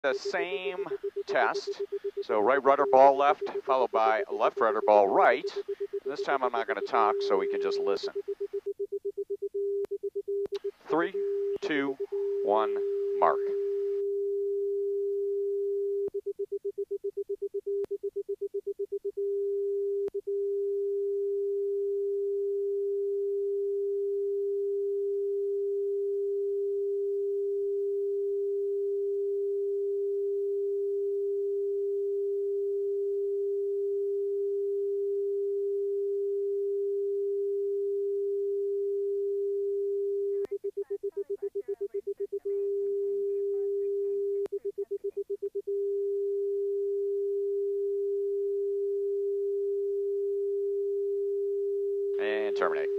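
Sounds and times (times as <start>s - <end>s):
electronic warning tone: 0.0s - 9.8s, 10.6s - 14.0s.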